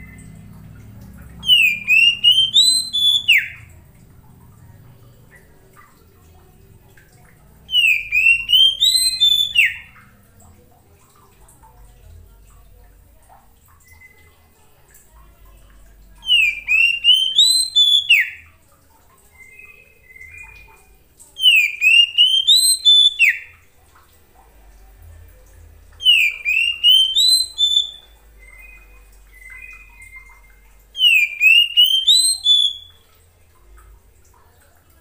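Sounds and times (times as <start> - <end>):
bird singing whistled phrase: 1.4 - 3.7, 7.7 - 10.0, 16.2 - 18.4, 21.4 - 23.5, 26.0 - 33.0.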